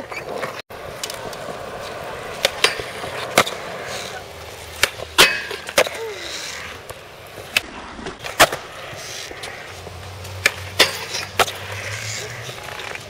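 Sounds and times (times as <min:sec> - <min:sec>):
skateboard clacking: 0:00.0 - 0:13.0
skateboard wheels rolling on concrete: 0:00.0 - 0:13.0.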